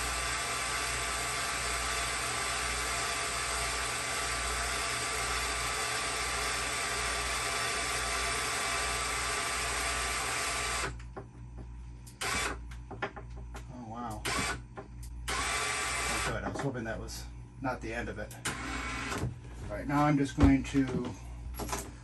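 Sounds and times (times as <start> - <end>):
geared motor whine: 0.0 - 22.0.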